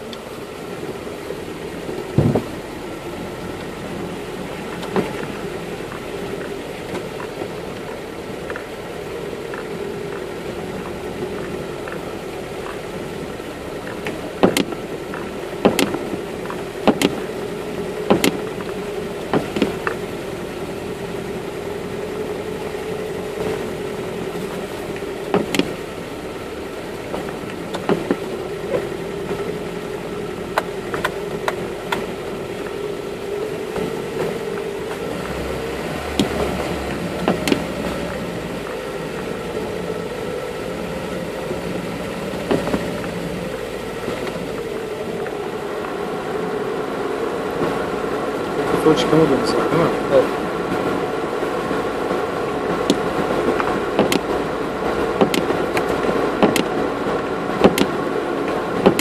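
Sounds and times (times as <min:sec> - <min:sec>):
vehicle engine running: 0:00.0 - 0:59.0
vehicle body knocks and rattles: 0:02.0 - 0:02.7, 0:13.8 - 0:17.2, 0:18.0 - 0:18.7, 0:19.3 - 0:20.0, 0:25.3 - 0:25.8, 0:27.1 - 0:28.9, 0:36.1 - 0:38.2, 0:52.8 - 0:54.4, 0:55.0 - 0:56.8, 0:57.6 - 0:58.0, 0:58.8 - 0:59.0.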